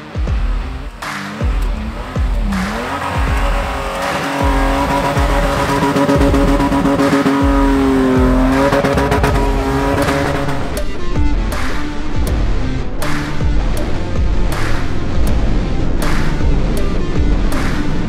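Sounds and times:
engine revving hard: 0.0 - 10.8.

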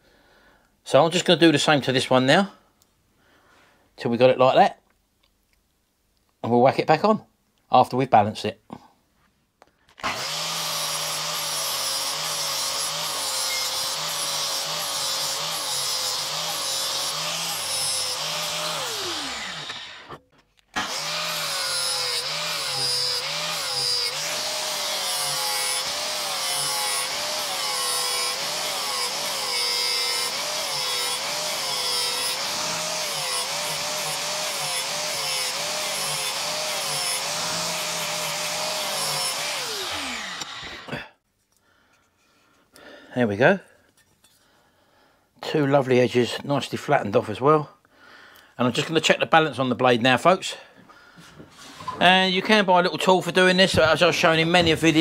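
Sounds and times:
angle grinder grinding metal: 10.0 - 41.1, 53.7 - 55.0.

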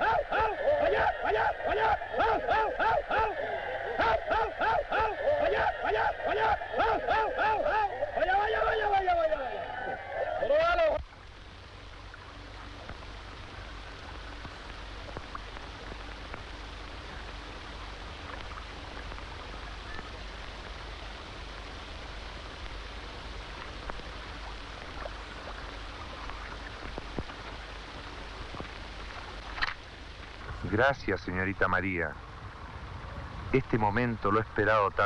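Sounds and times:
film soundtrack hiss: 0.0 - 35.0
low hum: 0.0 - 35.0
small crackles: 11.0 - 30.8.

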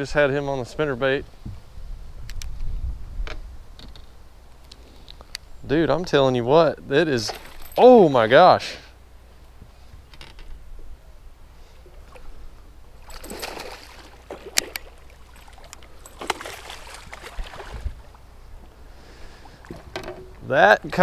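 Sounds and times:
fish splashing at surface: 13.0 - 17.9.

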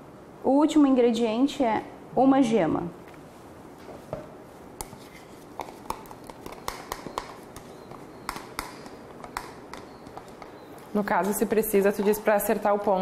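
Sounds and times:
spoon scraping plastic cup: 4.8 - 10.6.

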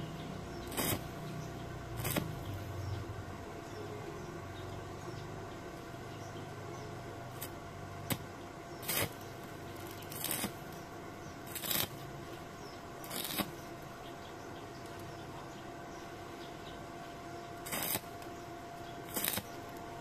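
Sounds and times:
steady hum: 0.0 - 20.0.

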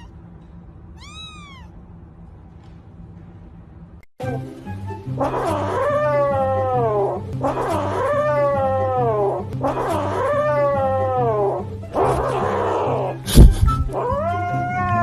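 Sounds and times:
kitten yowling: 1.0 - 1.8, 5.2 - 13.2, 13.9 - 15.0
background music: 4.2 - 15.0.

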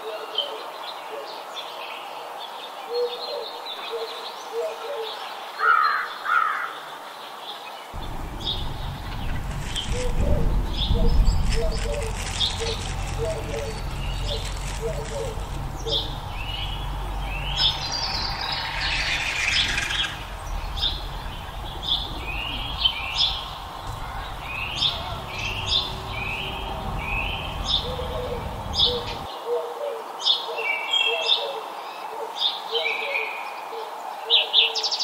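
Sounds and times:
small songbirds chirping: 0.0 - 35.0
low background rumble: 8.0 - 29.3.

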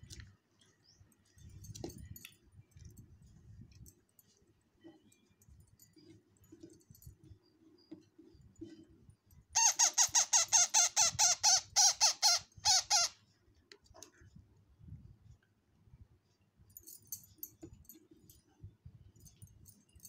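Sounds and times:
parrot chick squawking: 9.6 - 13.2.

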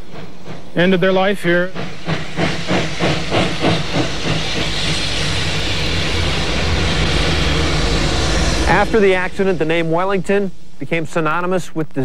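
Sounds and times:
low rumble: 0.0 - 11.6
rhythmic train beat: 0.0 - 12.0
steady hiss: 0.0 - 12.0.

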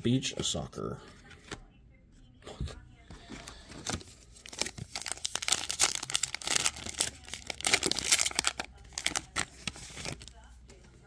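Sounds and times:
wrapper tearing and crinkling: 3.9 - 10.4.

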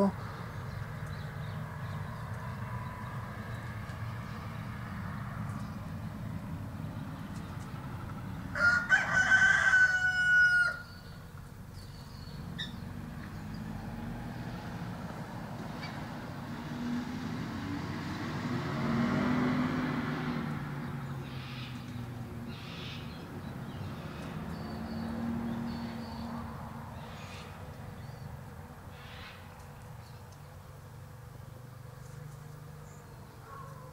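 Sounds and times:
rooster crowing: 8.5 - 11.0.

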